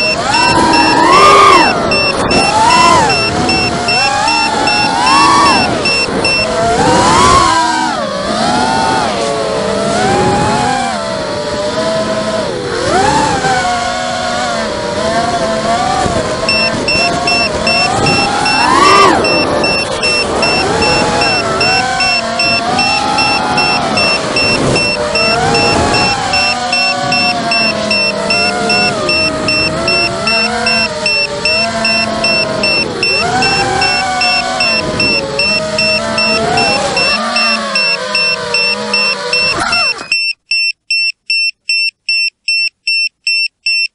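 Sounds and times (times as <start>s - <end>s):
electronic buzzer beeping: 0.0s - 7.3s, 16.5s - 43.9s
drone propellers whining: 0.0s - 40.2s.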